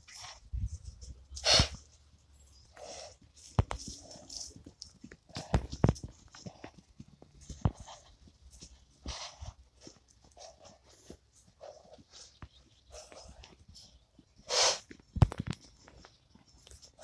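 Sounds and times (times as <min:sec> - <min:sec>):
horse blowing breaths: 0:00.0 - 0:02.0, 0:02.6 - 0:04.6, 0:05.2 - 0:15.1
hoof thuds on turf: 0:00.0 - 0:17.0
horse snorting: 0:01.4 - 0:01.8, 0:02.7 - 0:04.6, 0:05.3 - 0:12.3, 0:12.9 - 0:13.5, 0:14.4 - 0:14.9.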